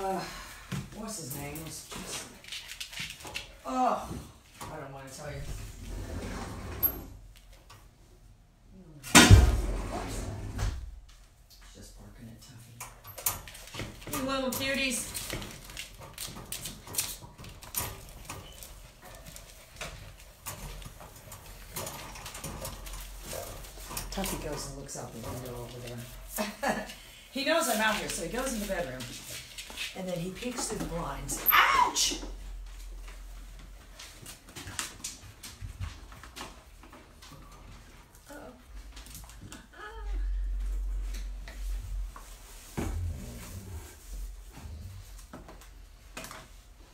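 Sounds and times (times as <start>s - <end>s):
puppies tapping and scuffling: 0.6s - 5.0s, 12.8s - 39.8s.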